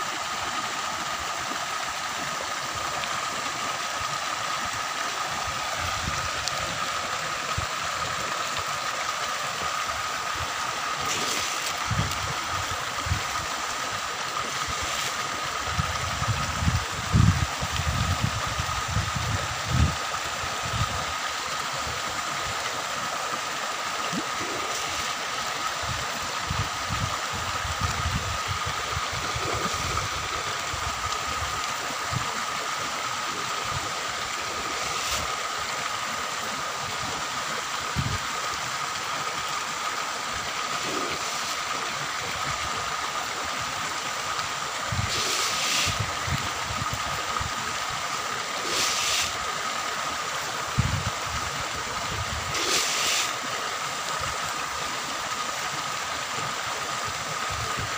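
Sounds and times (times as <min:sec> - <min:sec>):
water splashing into pond: 0:00.0 - 0:57.9
wind buffeting microphone: 0:15.6 - 0:20.0, 0:50.8 - 0:51.4.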